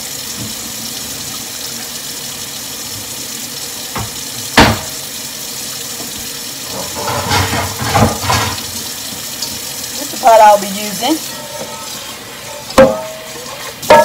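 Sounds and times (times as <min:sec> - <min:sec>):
faucet running into metal sink: 0:00.0 - 0:14.0
sharp knocks: 0:04.0 - 0:04.9.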